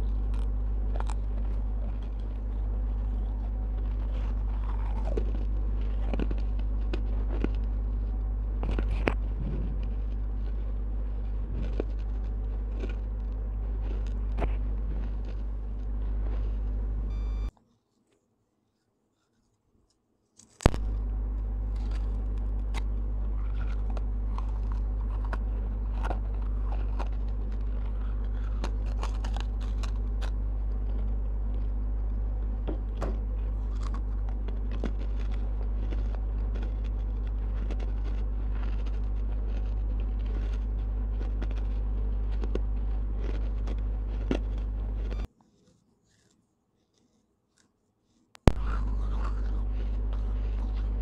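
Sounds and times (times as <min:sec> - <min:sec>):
clay pieces being chewed: 0:00.0 - 0:51.0
steady low hum: 0:00.0 - 0:51.0.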